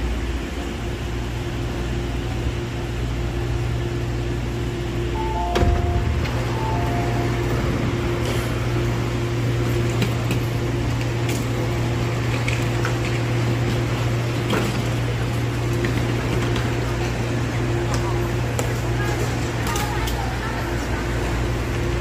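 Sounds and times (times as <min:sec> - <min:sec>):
low electrical drone: 0:00.0 - 0:22.0
higher steady tone: 0:05.0 - 0:09.7.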